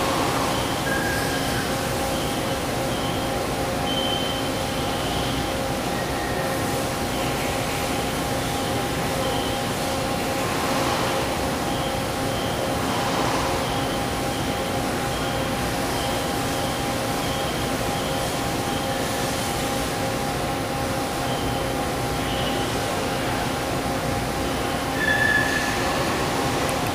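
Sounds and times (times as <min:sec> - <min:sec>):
factory background noise: 0:00.0 - 0:26.9
steady machine whine: 0:00.0 - 0:26.9
faint high whine: 0:00.4 - 0:10.2.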